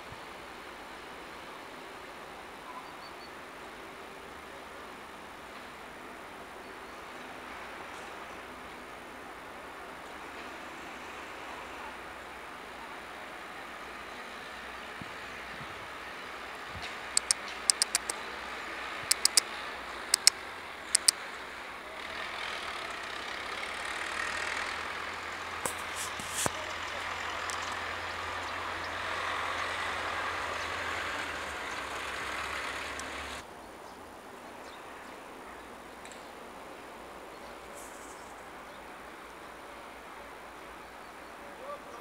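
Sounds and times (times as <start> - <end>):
traffic noise: 0.0 - 42.0
engine hum: 13.8 - 33.4
sharp high ticks: 17.1 - 18.2, 19.1 - 19.5, 20.2 - 20.4, 21.0 - 21.2.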